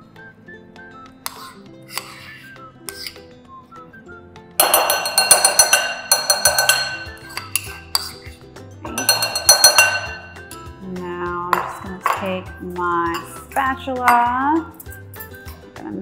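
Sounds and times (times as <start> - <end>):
background music: 0.0 - 16.0
metal spoon scraping ceramic bowl: 1.2 - 3.3, 4.6 - 10.7.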